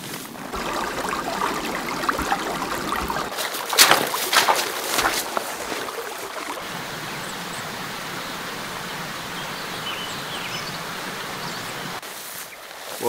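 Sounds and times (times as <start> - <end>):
small birds chirping: 6.0 - 12.6.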